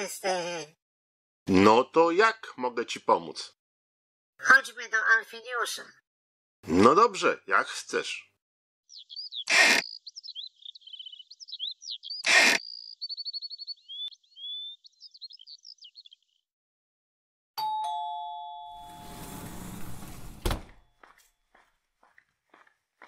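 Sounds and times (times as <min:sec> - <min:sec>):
cartoon birdsong chirps and trills: 0:08.9 - 0:16.5
ding-dong doorbell: 0:17.6 - 0:19.0
sliding door hiss: 0:18.8 - 0:20.7.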